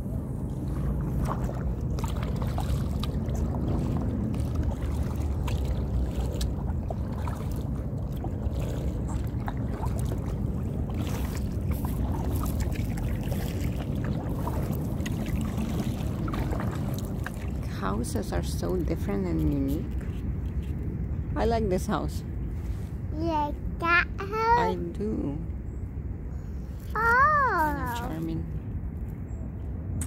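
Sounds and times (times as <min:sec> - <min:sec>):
low rumble: 0:00.0 - 0:24.2
water lapping at hull: 0:00.0 - 0:25.8
paddle splashing and dripping: 0:00.4 - 0:18.6.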